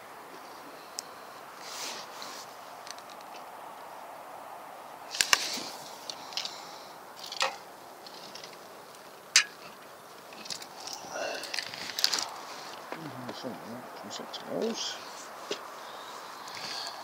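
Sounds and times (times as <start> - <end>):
fishing pole and tackle clicking: 2.8 - 3.5, 7.2 - 12.4.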